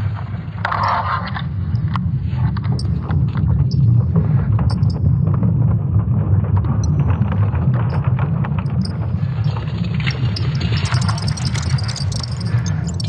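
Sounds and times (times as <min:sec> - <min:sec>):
deep steady rumble: 0:01.5 - 0:13.0
crackles and ticks: 0:01.7 - 0:04.0, 0:04.6 - 0:05.1, 0:06.6 - 0:13.0.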